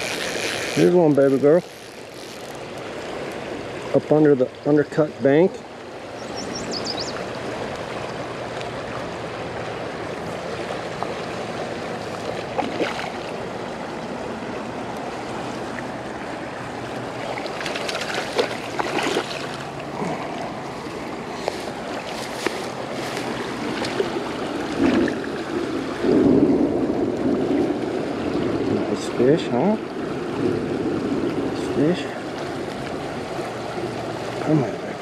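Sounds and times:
stream rushing: 0:00.0 - 0:35.0
fish splashing in net: 0:12.5 - 0:13.3, 0:17.2 - 0:19.6.

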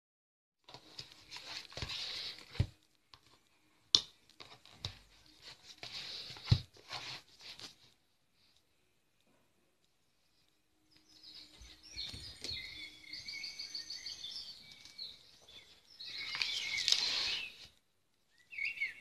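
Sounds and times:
cardboard book rubbing and scraping: 0:00.7 - 0:02.8, 0:04.4 - 0:08.0.

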